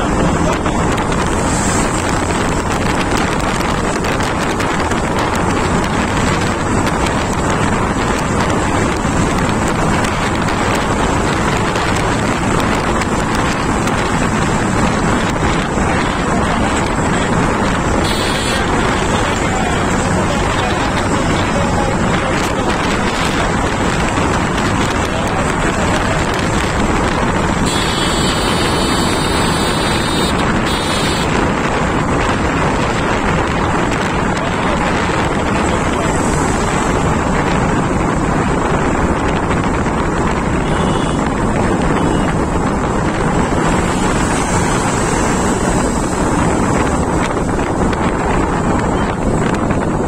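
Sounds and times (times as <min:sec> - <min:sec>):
road noise: 0:00.0 - 0:50.0
wind roaring over microphone: 0:00.0 - 0:50.0
motorcycle engine: 0:04.8 - 0:32.3.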